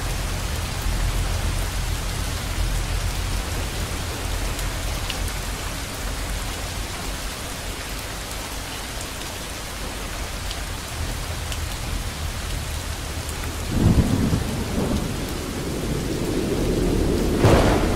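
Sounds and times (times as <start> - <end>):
rain hissing: 0.0 - 17.9
thunder rumbling: 13.6 - 17.9.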